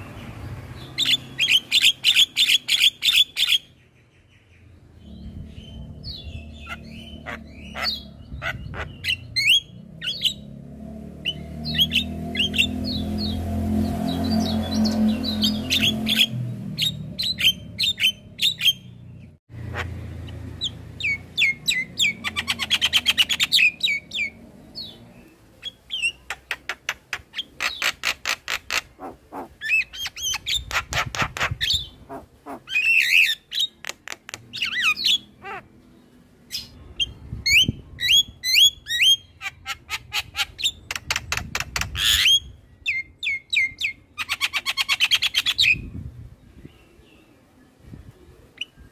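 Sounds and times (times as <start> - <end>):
bird chattering and whistling: 19.7 - 25.0, 25.6 - 35.7.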